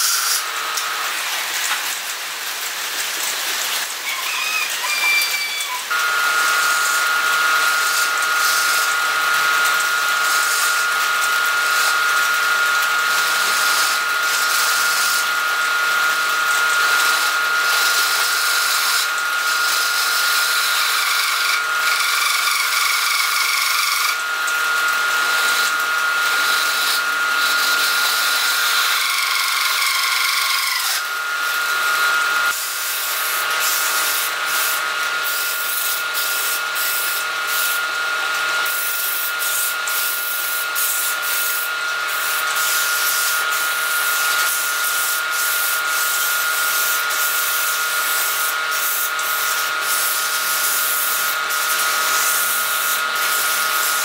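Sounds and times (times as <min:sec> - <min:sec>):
lathe high whine: 0:00.0 - 0:54.0
chisel scraping on lathe: 0:17.2 - 0:19.0, 0:26.4 - 0:27.0.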